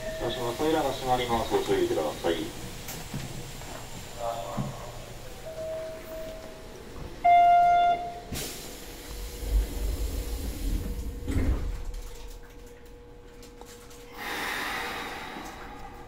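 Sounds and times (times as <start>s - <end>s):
faint carriage hum: 0.0s - 16.0s
air hiss of doors: 8.2s - 11.7s, 14.1s - 16.0s
sliding doors rumbling shut: 8.2s - 12.5s.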